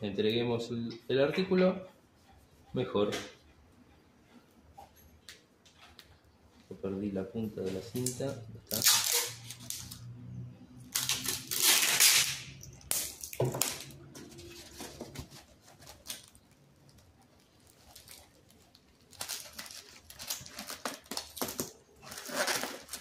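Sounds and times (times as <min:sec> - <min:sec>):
rustling packing tape and box: 0:08.0 - 0:10.1, 0:10.9 - 0:23.0
foam sheet crinkling: 0:11.0 - 0:23.0.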